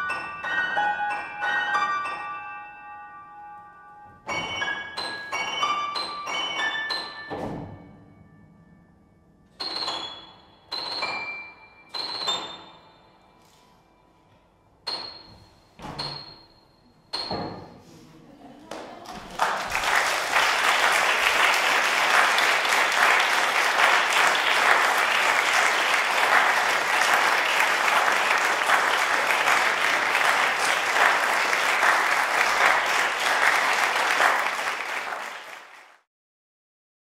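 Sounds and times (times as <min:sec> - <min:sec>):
audience applauding: 0:18.6 - 0:36.1.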